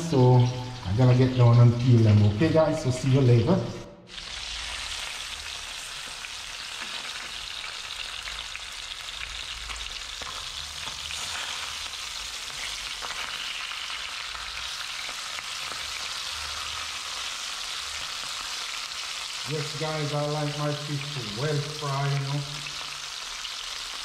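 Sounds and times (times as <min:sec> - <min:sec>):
fish sizzling in frying pan: 0:04.1 - 0:24.0.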